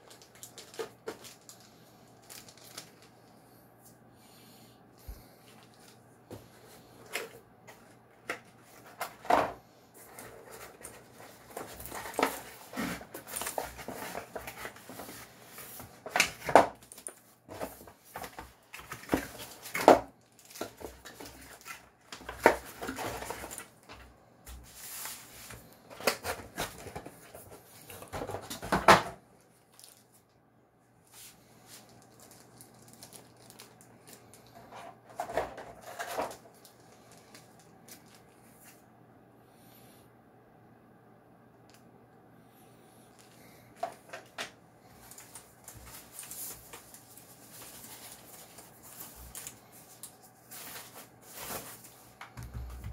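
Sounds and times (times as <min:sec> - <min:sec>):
plastic wrap crinkling: 0:00.0 - 0:03.2, 0:10.0 - 0:23.9, 0:29.4 - 0:30.3, 0:31.2 - 0:38.8, 0:43.2 - 0:52.9
small plastic bag rustle: 0:00.0 - 0:03.4, 0:05.2 - 0:24.0, 0:29.4 - 0:30.4, 0:31.1 - 0:38.8, 0:43.1 - 0:52.2
knocks of keyboard and box: 0:52.3 - 0:52.9.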